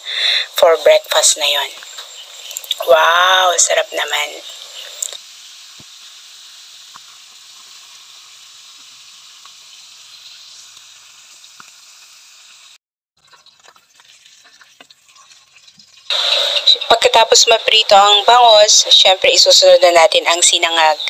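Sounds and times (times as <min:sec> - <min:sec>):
fish frying in oil: 0:00.0 - 0:21.0
oil popping: 0:01.8 - 0:02.9, 0:13.2 - 0:17.2.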